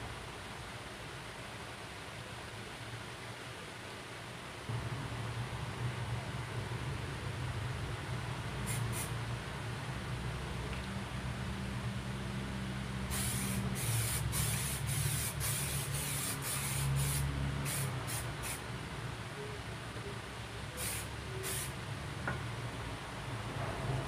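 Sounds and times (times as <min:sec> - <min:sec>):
spray can hissing bursts: 0:08.7 - 0:09.1, 0:13.1 - 0:18.6, 0:20.8 - 0:21.8.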